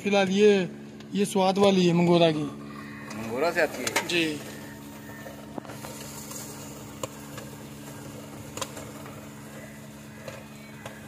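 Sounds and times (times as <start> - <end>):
popcorn machine humming: 0.0 - 11.0
popcorn kernels popping: 5.5 - 11.0.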